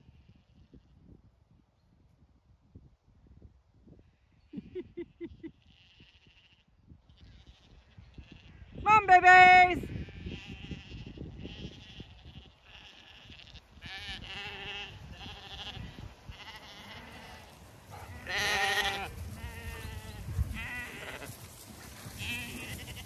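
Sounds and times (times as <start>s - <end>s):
lambs bleating: 5.6s - 8.7s, 9.5s - 21.3s, 22.2s - 23.0s.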